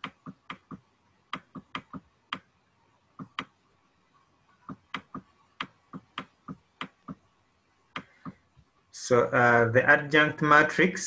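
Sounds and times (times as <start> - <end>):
stylus tapping on pen tablet: 0.0 - 2.5.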